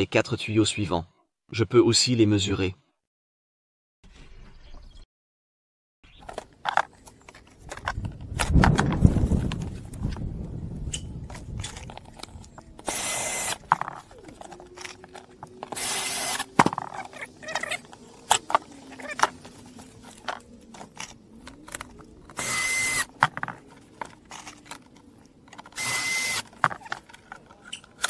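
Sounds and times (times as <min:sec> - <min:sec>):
cordless drill bursts: 0:12.8 - 0:13.6, 0:15.8 - 0:16.5, 0:22.4 - 0:23.1, 0:25.8 - 0:26.5.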